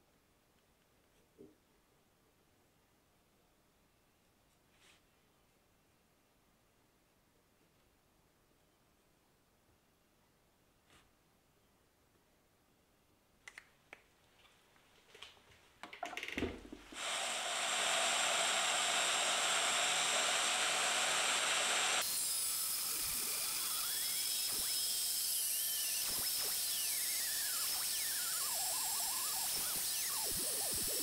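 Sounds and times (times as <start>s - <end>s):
band saw cutting steel: 17.0s - 31.0s
high squeal gliding: 26.7s - 31.0s.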